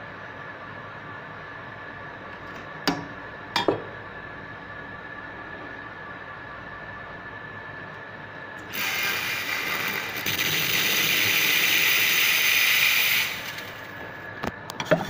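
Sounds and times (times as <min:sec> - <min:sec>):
steam wand hissing: 0:08.7 - 0:13.9.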